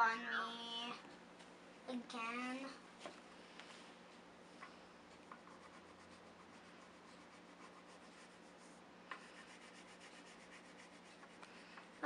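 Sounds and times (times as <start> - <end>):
drawing tool scratching on paper: 5.1 - 12.0.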